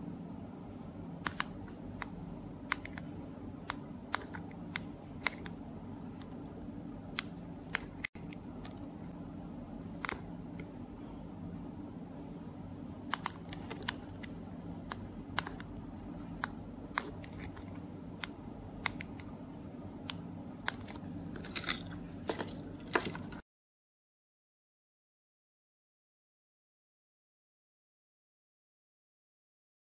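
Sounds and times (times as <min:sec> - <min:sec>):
low background hum: 0:00.0 - 0:23.4.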